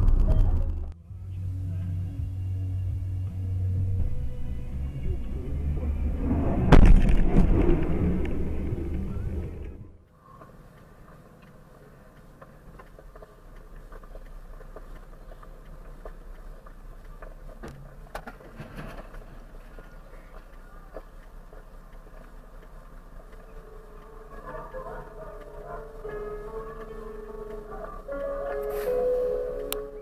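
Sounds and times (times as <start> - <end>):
heavy lorry passing: 0.0 - 30.0
in-car road noise: 0.0 - 30.0
loud bang of bouncing wheel: 6.6 - 9.3.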